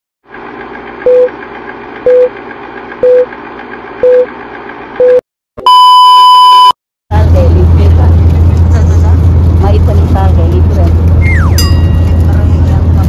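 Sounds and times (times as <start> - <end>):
long high-pitched beep: 5.0 - 6.8
short beeps: 5.0 - 6.8.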